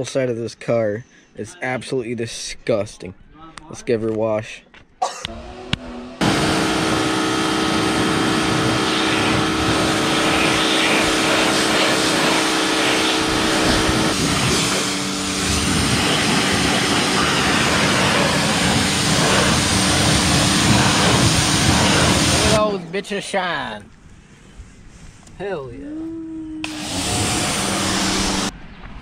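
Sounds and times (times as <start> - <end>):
pressure washer motor drone: 5.3 - 22.7, 26.6 - 28.5
water jet spraying: 6.2 - 22.6, 26.6 - 28.5.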